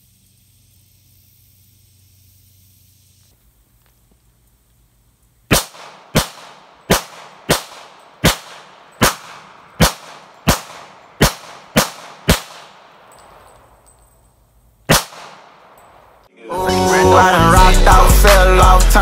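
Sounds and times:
pistol shots with echo: 0:05.5 - 0:13.6, 0:14.9 - 0:16.1.

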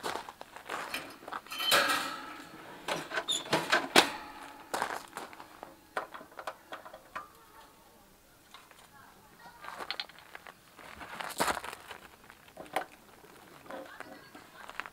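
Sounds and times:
metal clinks and knocks: 0:00.7 - 0:07.7.

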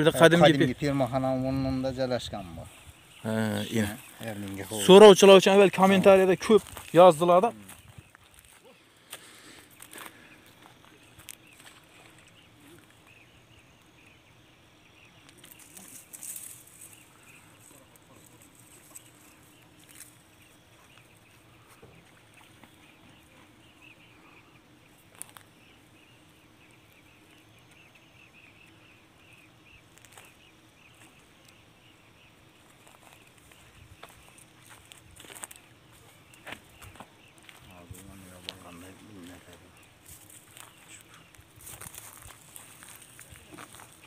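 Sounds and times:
distant bird calls: 0:00.0 - 0:44.0
rustle: 0:15.0 - 0:44.0.

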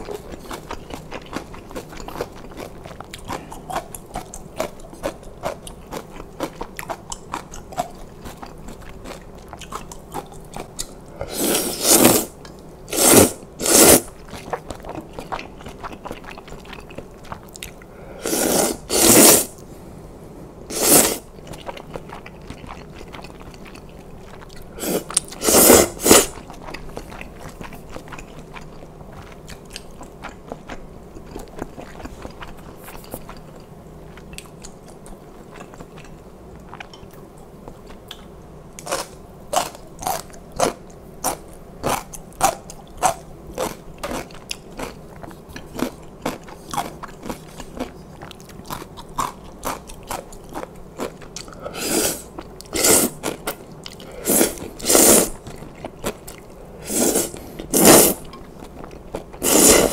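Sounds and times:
chewing with wet mouth clicks: 0:00.0 - 0:11.0, 0:14.2 - 0:17.9, 0:21.4 - 0:25.4, 0:26.4 - 0:51.6
person slurping noodles: 0:11.2 - 0:14.1, 0:18.1 - 0:19.6, 0:20.7 - 0:21.3, 0:24.8 - 0:26.4, 0:51.6 - 0:53.3, 0:54.0 - 0:55.4, 0:56.8 - 0:58.3, 0:59.4 - 0:59.9.

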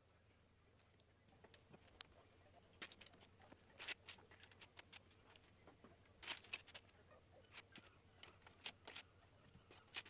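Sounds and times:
plastic bricks clicking and rattling: 0:09.7 - 0:10.0.

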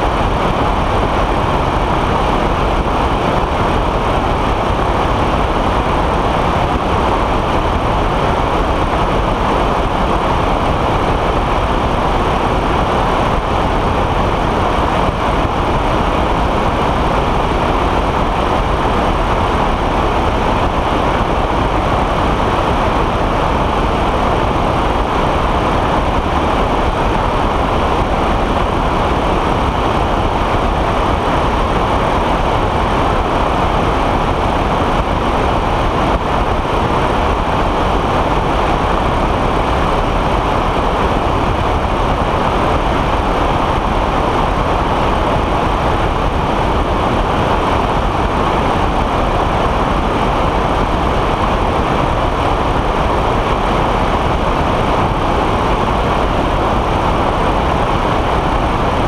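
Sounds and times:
aircraft engine droning: 0:00.0 - 0:59.0
wind rushing over microphone: 0:00.0 - 0:59.0.

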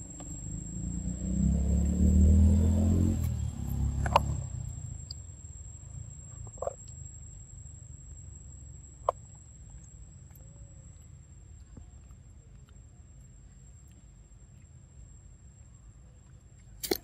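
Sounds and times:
passing vehicle engine rumble: 0:00.0 - 0:08.9
thin high-pitched whine: 0:00.0 - 0:17.0.

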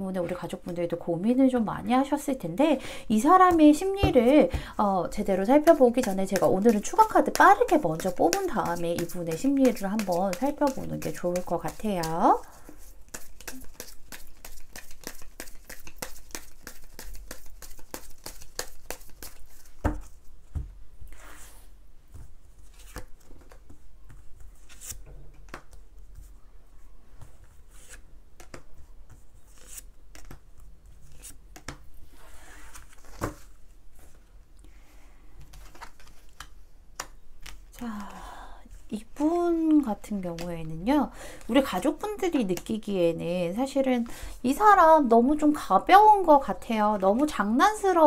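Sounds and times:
cards shuffling: 0:05.6 - 0:20.2, 0:22.6 - 0:25.8, 0:29.4 - 0:30.4, 0:31.0 - 0:31.8, 0:35.5 - 0:37.8
cards snapping and sliding: 0:13.1 - 0:19.4.

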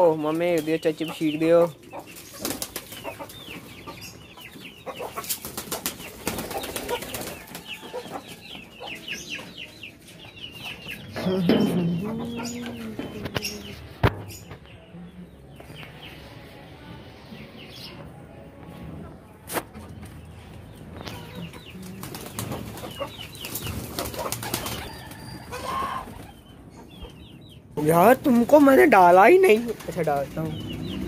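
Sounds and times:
chickens clucking: 0:00.0 - 0:31.0
wings flapping: 0:02.1 - 0:03.4, 0:05.2 - 0:07.7, 0:21.7 - 0:25.2, 0:29.3 - 0:31.0
drawn-out low chicken call: 0:24.9 - 0:26.2.

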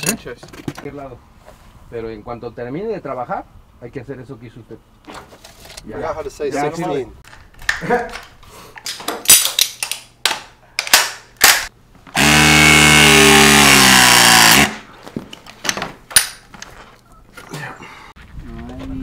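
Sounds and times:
tool handling clicks and knocks: 0:00.0 - 0:00.9, 0:07.2 - 0:11.7, 0:15.1 - 0:16.8
power tool motor running: 0:12.2 - 0:14.8.

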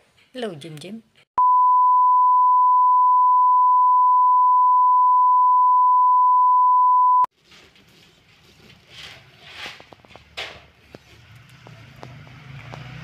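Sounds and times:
steady test tone beep: 0:01.4 - 0:07.3.

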